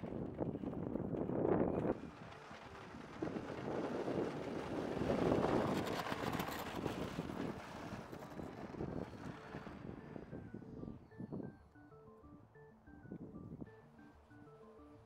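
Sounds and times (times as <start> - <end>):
model plane electric motor and propeller: 0.0 - 10.6
wind on microphone: 0.0 - 11.5
music: 9.3 - 15.0.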